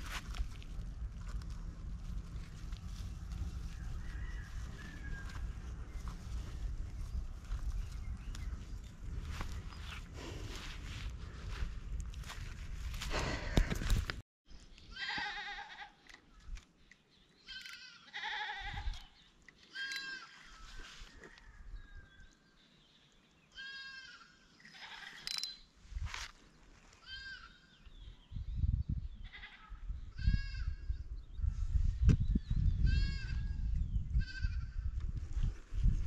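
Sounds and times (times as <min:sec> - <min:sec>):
animal bleating: 0:14.9 - 0:16.0, 0:17.5 - 0:19.1, 0:19.7 - 0:20.5, 0:23.6 - 0:25.2, 0:27.0 - 0:27.6, 0:29.2 - 0:30.8, 0:32.9 - 0:33.5.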